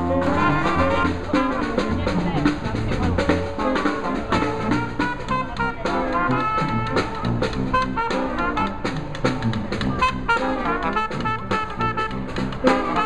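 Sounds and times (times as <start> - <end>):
sousaphone bass line: 0.0 - 10.3
brass band playing jazz: 0.0 - 13.0
marching snare drum: 0.0 - 13.0.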